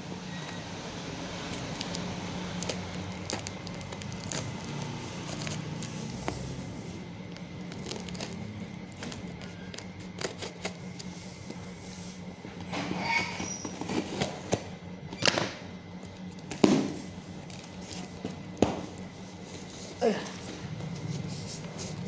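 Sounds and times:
cardboard parcel being opened: 0.2s - 11.8s, 13.3s - 14.8s, 16.1s - 22.0s.

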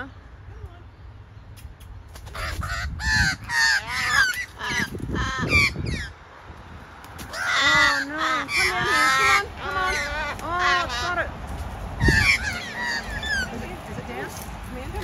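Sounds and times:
crows cawing: 2.3s - 6.2s, 7.2s - 14.4s.

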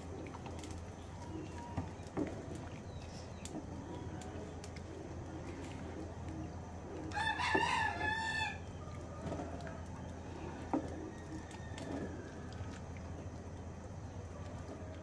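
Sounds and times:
rooster crowing: 7.1s - 9.8s, 11.0s - 12.6s.

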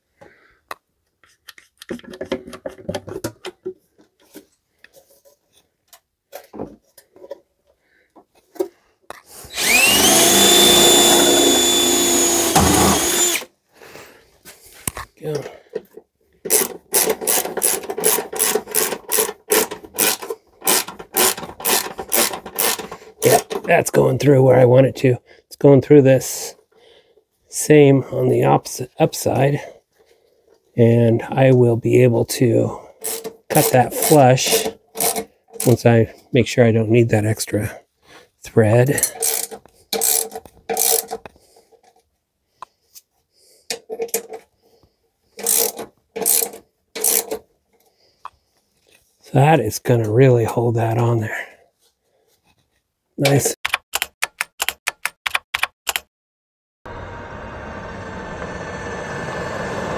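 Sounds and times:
ratchet wrench clicking: 39.2s - 41.1s, 45.4s - 47.3s.

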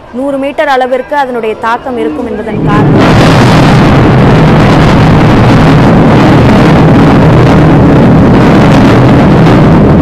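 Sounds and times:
building collapse rumble: 2.2s - 10.0s.

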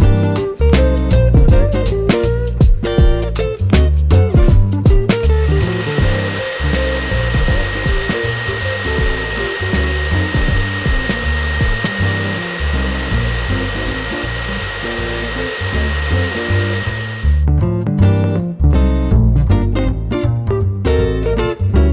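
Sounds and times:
grooming dryer blowing air: 5.0s - 17.4s.

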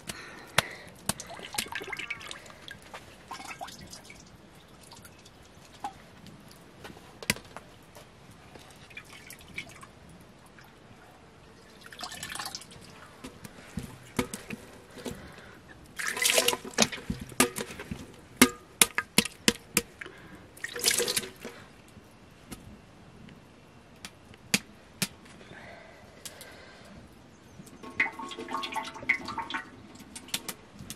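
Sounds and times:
liquid drips: 0.0s - 6.6s, 11.6s - 17.7s, 20.0s - 21.6s, 27.7s - 30.6s
wet squelches in metal basin: 11.8s - 18.1s, 27.7s - 30.5s.

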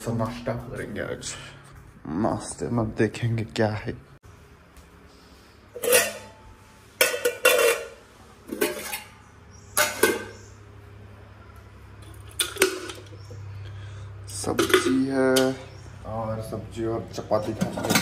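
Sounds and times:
metal pot lids clanking: 5.7s - 10.5s, 12.0s - 13.3s, 14.3s - 15.7s, 17.2s - 18.0s.

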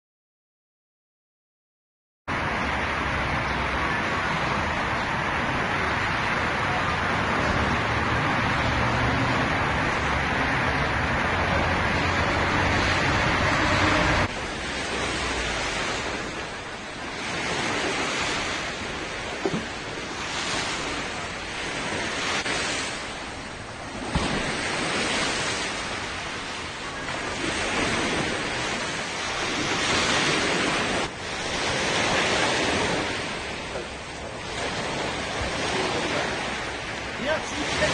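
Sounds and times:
low engine hum: 2.3s - 29.8s
sea waves washing: 2.3s - 37.9s.

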